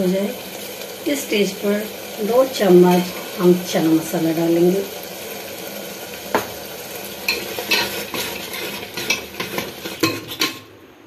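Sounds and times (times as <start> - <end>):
sizzling in oil: 0.0 - 11.0
spoon scraping a pot: 7.3 - 10.6.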